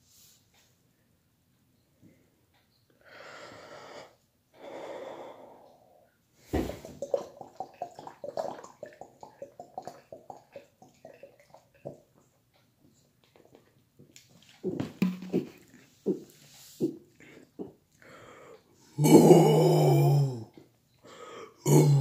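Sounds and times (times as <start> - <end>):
deep breaths: 3.0 - 7.0, 16.5 - 18.9, 21.0 - 21.6
soda glugging from bottle: 6.5 - 12.1, 14.7 - 16.2
rapid gulping swallows: 6.5 - 12.3.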